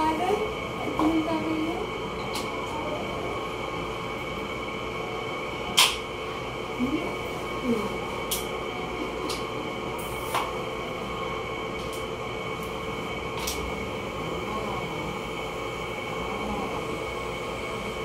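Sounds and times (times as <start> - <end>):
electric motor hum: 0.0 - 18.0.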